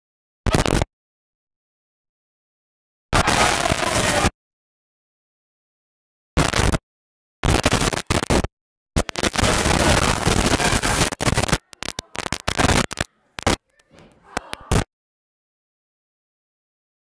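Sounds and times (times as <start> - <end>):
static-like hiss: 6.4 - 6.8, 7.4 - 13.8.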